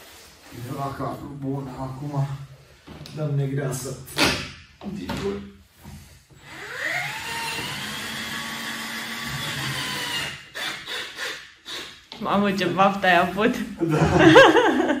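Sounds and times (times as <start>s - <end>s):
cordless drill whine: 6.4s - 11.9s.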